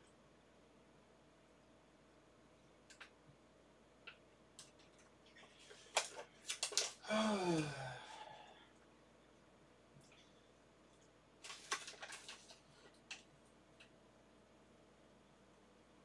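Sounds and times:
man humming: 0:07.0 - 0:08.4.

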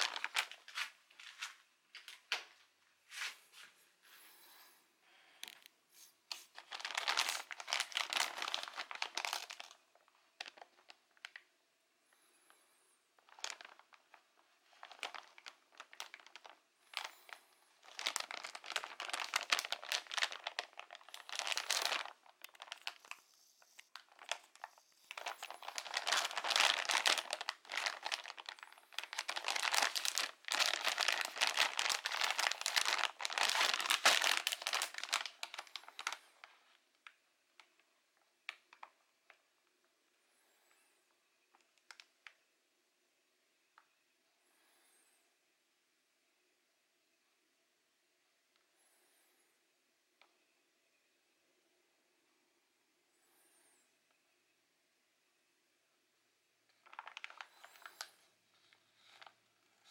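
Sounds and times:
plastic bag crinkling: 0:00.0 - 0:02.5, 0:05.4 - 0:11.5, 0:13.2 - 0:37.8, 0:41.5 - 0:42.4, 0:56.7 - 0:59.9.

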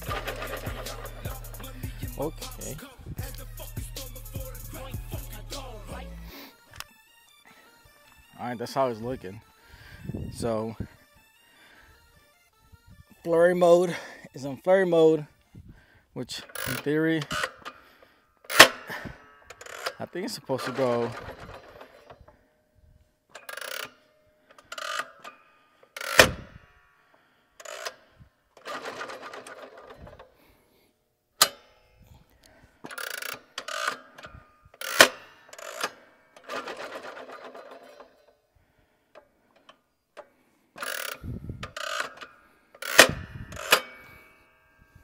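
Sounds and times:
clay thrower mechanical rattling: 0:00.0 - 0:02.8, 0:16.3 - 0:17.9, 0:18.5 - 0:22.4, 0:23.3 - 0:26.6, 0:27.6 - 0:30.5, 0:31.4 - 0:38.4, 0:39.1 - 0:45.0.

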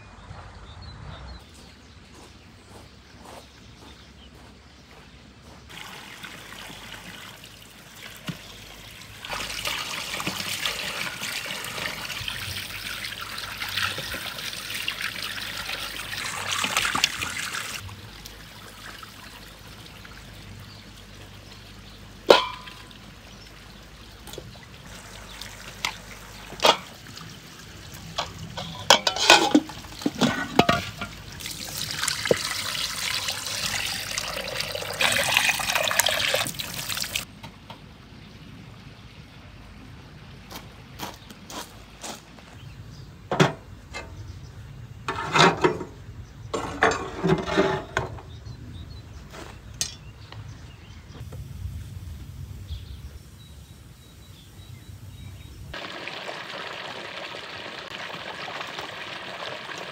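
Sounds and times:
water running and splashing: 0:05.7 - 0:37.3, 0:55.1 - 0:59.9
water pouring into pot: 0:09.1 - 0:19.8, 0:24.9 - 0:37.2, 0:55.8 - 0:59.9
metal pot clanking: 0:22.3 - 0:23.0, 0:26.4 - 0:27.0, 0:28.1 - 0:31.3, 0:45.1 - 0:48.3.

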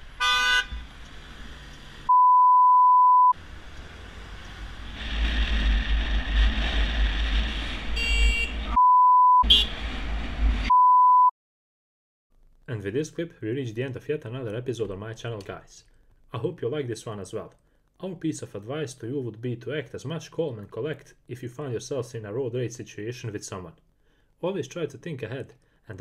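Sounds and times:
wind and road noise: 0:00.0 - 0:02.1, 0:03.4 - 0:08.8, 0:09.4 - 0:10.7
censor bleep tone: 0:02.1 - 0:03.4, 0:08.0 - 0:09.5, 0:10.7 - 0:11.3.

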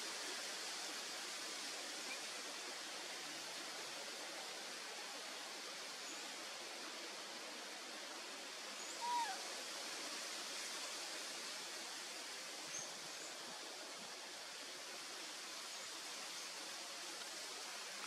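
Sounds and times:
outdoor background hiss: 0:00.0 - 0:18.0
animal call falling tone: 0:09.0 - 0:09.4.

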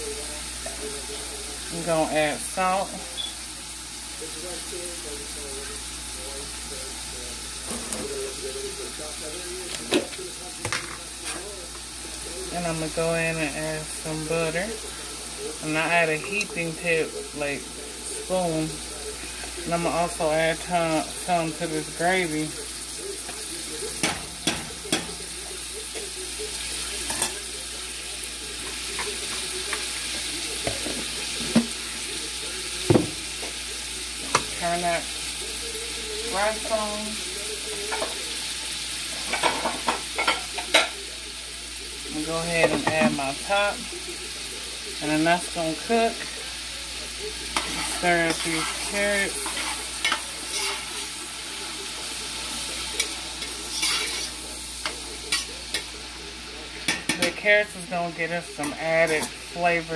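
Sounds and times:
food sizzling in a frying pan: 0:00.0 - 0:59.9.

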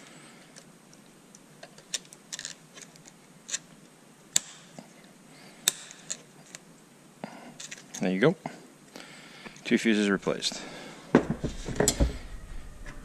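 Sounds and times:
wiring being handled: 0:00.4 - 0:04.9
fuse clicking into clips: 0:04.3 - 0:04.7, 0:05.6 - 0:06.6.

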